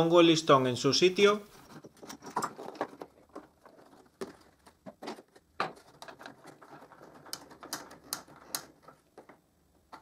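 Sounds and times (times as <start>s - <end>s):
wood and metal knocks and clicks: 1.7s - 10.0s.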